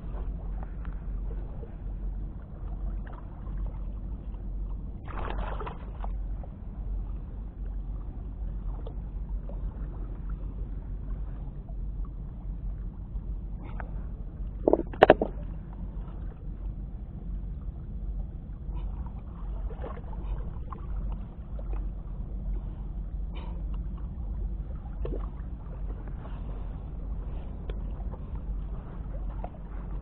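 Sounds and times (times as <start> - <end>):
water sloshing among rocks: 0.0 - 6.5, 13.5 - 16.8, 18.6 - 30.0.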